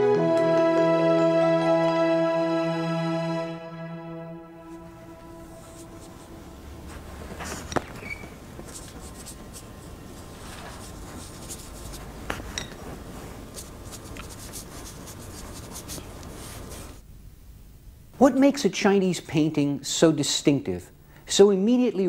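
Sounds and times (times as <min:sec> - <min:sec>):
brush rubbing on paper: 0:04.6 - 0:07.8, 0:08.6 - 0:17.0.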